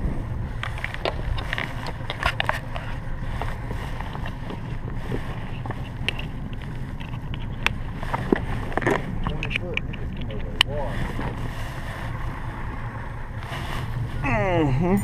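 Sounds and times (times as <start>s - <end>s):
wind buffeting microphone: 0.0s - 14.3s
clicks and rustles of handling gear: 0.6s - 11.4s.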